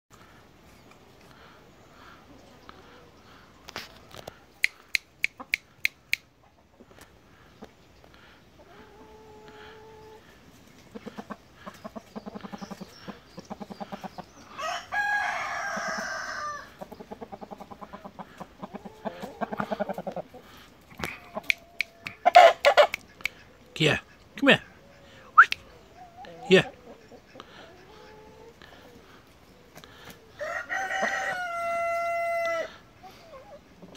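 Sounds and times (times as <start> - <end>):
chickens clucking: 0.1 - 33.9
sharp clicks: 4.2 - 6.3
rooster crowing: 14.6 - 16.7, 30.4 - 32.8.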